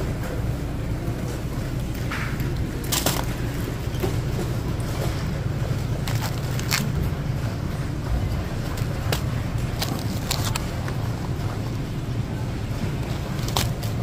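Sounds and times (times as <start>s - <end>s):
refrigerator hum: 0.0s - 14.0s
plastic-wrapped tray crinkling: 2.5s - 7.2s, 8.4s - 11.8s, 12.9s - 14.0s.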